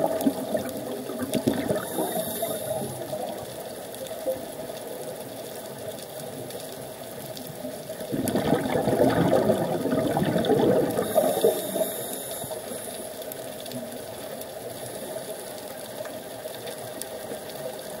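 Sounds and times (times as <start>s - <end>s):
faint underwater rush: 0.0s - 3.5s, 8.1s - 13.4s
underwater exhaust bubbles: 0.0s - 18.0s.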